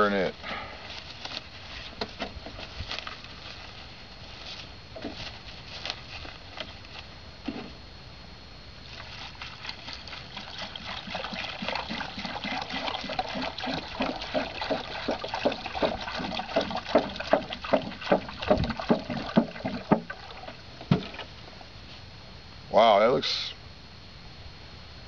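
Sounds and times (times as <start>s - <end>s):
water pouring from jug: 8.9s - 21.4s
water glugging: 9.0s - 21.4s.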